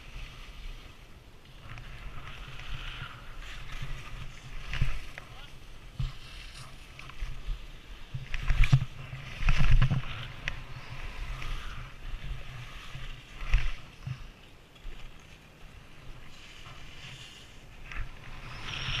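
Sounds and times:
skis scraping over snow: 0.0 - 19.0.

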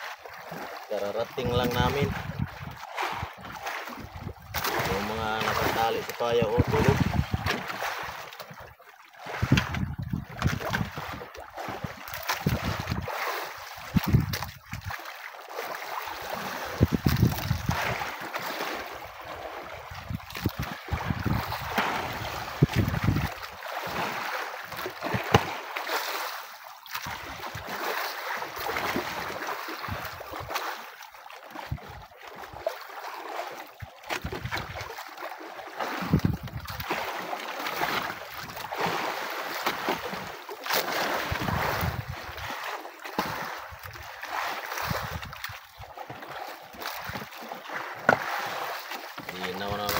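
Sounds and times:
sea waves washing: 0.0 - 8.4, 10.7 - 31.0, 46.2 - 49.9
wind gusting on microphone: 1.6 - 3.3, 6.6 - 7.5, 9.4 - 11.0, 13.9 - 14.6, 16.7 - 18.0, 19.9 - 23.4, 36.0 - 36.7, 41.3 - 42.2.

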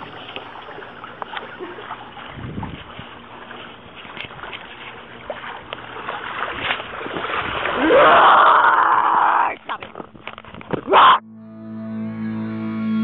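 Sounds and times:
pool water sloshing and splashing: 0.0 - 8.9.

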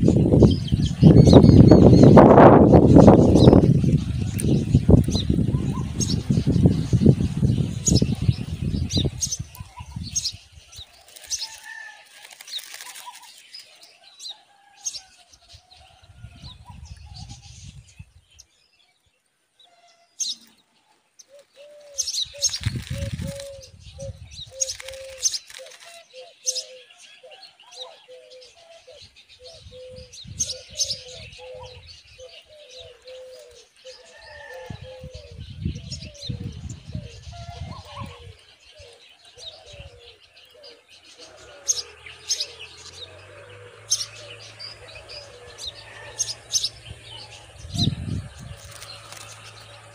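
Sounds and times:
rustling in dry grass: 2.2 - 13.9, 22.0 - 26.2, 44.3 - 49.9
bird clicks and thin chirps: 10.8 - 13.8, 22.3 - 23.6, 24.6 - 26.1
wing flaps: 11.0 - 13.4, 22.4 - 23.6, 24.6 - 26.0, 47.9 - 49.9
low wavering bird notes: 39.6 - 49.9.

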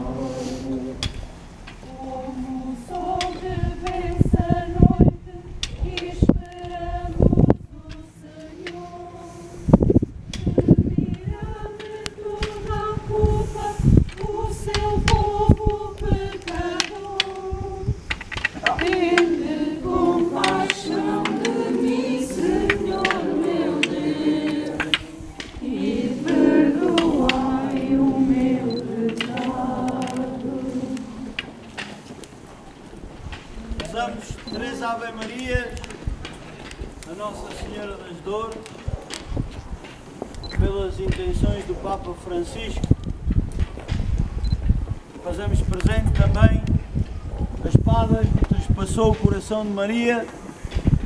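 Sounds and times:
voices singing a slow hymn: 0.0 - 43.3.

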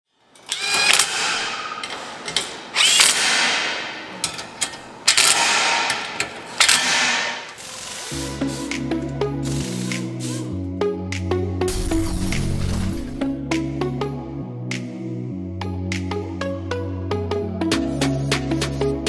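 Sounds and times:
cordless drill driving bolts into steel: 0.4 - 8.6.

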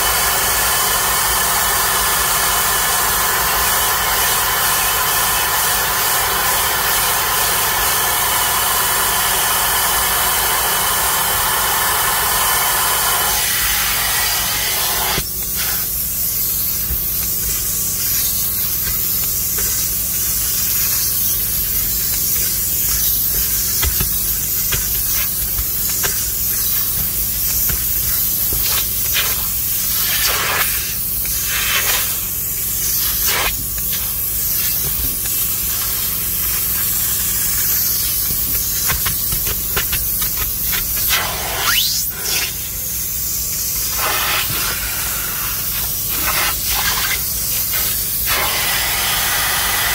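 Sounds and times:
extractor spraying and sucking water: 0.0 - 49.9
steady low hum: 13.3 - 44.0
rotary scrubber brush whirring: 13.9 - 30.6.

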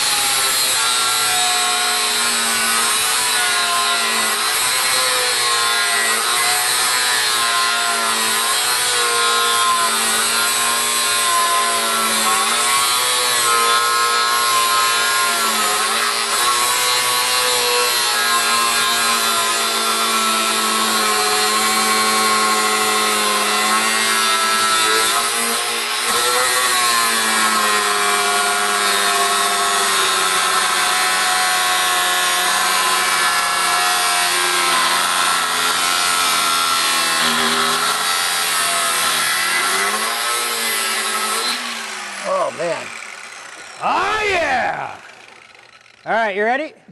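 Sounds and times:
angle grinder cutting metal: 0.0 - 46.5.

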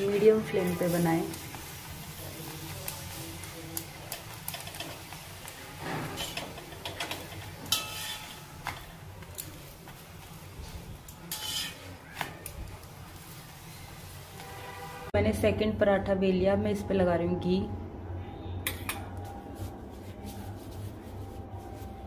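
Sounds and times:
metal spatula scraping a pan: 5.7 - 8.8, 11.1 - 12.1.

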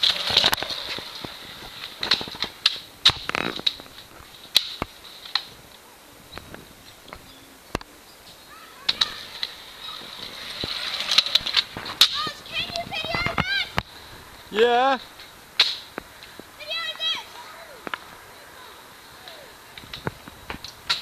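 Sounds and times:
wheels and decks clacking on concrete: 0.0 - 5.5, 8.8 - 13.9.

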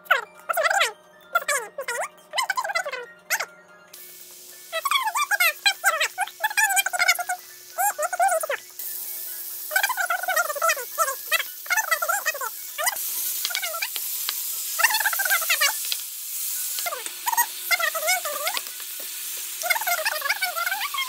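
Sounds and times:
high wavering melodic sound: 0.0 - 13.0
food sizzling in a pan: 0.5 - 21.0.

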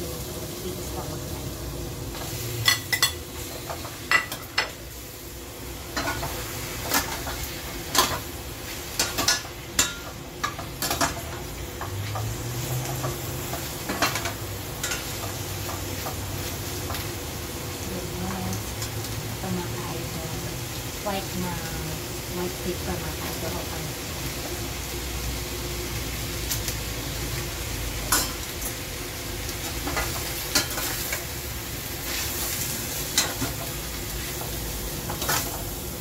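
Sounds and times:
meat sizzling in a pot: 0.0 - 36.0.

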